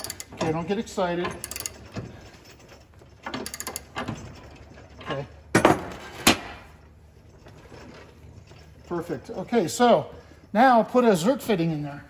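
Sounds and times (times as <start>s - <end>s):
socket ratchet clicking: 0.0s - 0.3s, 1.4s - 1.8s, 3.4s - 3.9s.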